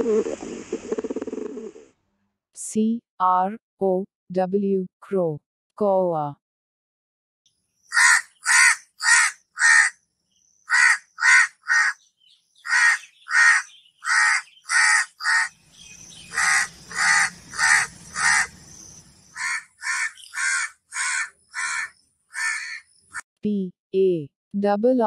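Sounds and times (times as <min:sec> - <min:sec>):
crow cawing: 0:07.9 - 0:10.0, 0:10.7 - 0:12.0, 0:12.6 - 0:15.5, 0:16.2 - 0:18.6, 0:19.3 - 0:23.2.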